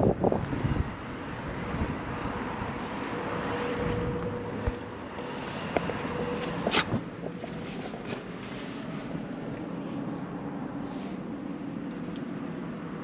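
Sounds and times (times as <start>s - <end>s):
wind on microphone: 0.0s - 4.9s.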